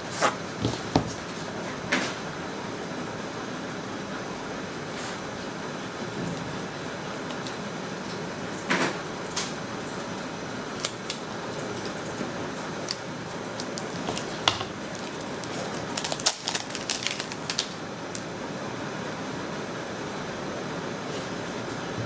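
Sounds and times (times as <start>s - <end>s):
plastic wrap crinkling: 12.8s - 18.3s.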